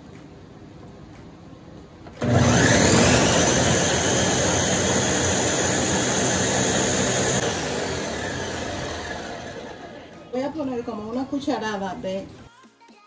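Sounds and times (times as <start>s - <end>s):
blender motor running: 2.2s - 10.2s.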